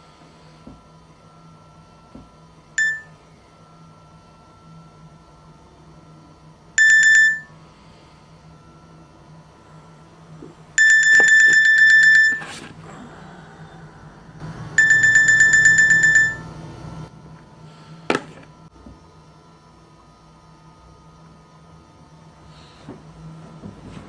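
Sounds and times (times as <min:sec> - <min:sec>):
pulsing electronic alarm: 0:02.8 - 0:03.2, 0:06.8 - 0:07.6, 0:10.8 - 0:12.6, 0:14.7 - 0:17.1.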